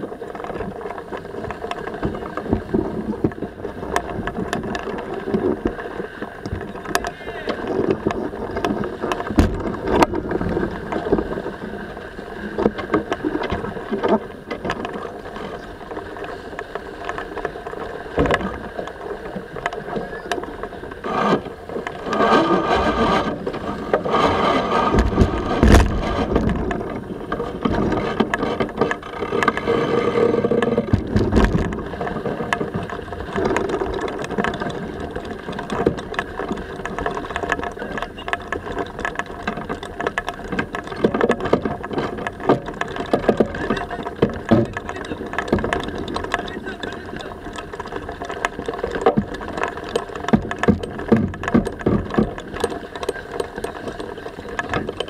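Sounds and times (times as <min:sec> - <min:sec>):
wind and water rushing: 0:00.0 - 0:55.0
lines and deck hardware rattling: 0:06.4 - 0:11.3, 0:20.4 - 0:55.0
winch cranking: 0:12.5 - 0:55.0.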